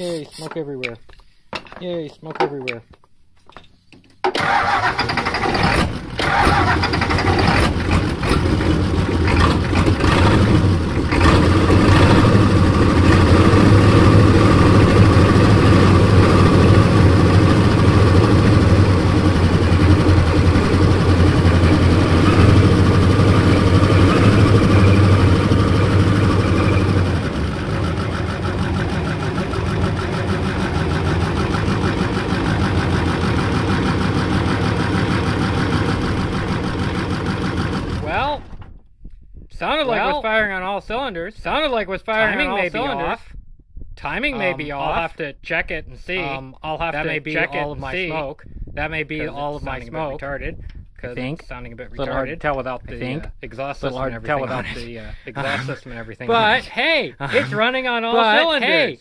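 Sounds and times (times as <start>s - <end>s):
diesel engine running loud: 4.4s - 38.7s.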